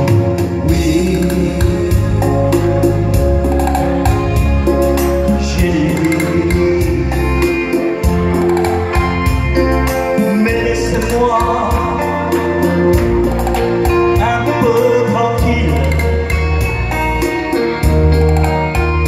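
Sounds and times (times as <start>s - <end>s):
man singing into a microphone: 0.0s - 3.2s, 5.0s - 8.4s, 9.9s - 13.1s, 13.8s - 16.9s
electronic keyboard with beat: 0.0s - 19.0s.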